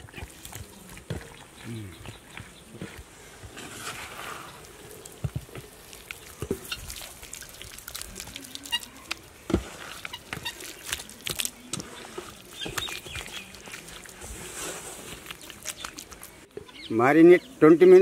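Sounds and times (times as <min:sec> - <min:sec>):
hands squelching in wet marinade: 0:03.8 - 0:16.5.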